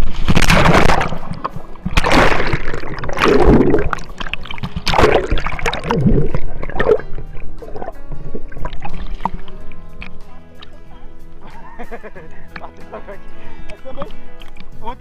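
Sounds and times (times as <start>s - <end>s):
pool water splashing: 0.0s - 10.9s
water sloshing: 0.0s - 10.9s
muffled underwater gurgling: 0.8s - 9.7s.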